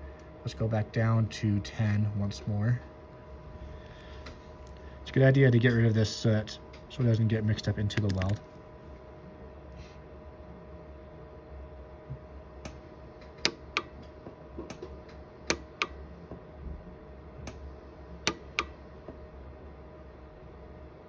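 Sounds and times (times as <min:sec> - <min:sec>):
faint steady hum: 0:00.0 - 0:21.0
sharp welder snaps: 0:18.3 - 0:18.7.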